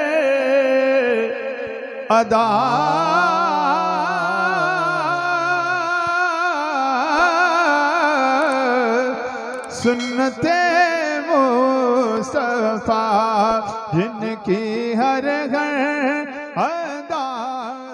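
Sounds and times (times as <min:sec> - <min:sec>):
man singing a long wavering note: 0:00.0 - 0:17.9
low held tone: 0:09.6 - 0:11.1.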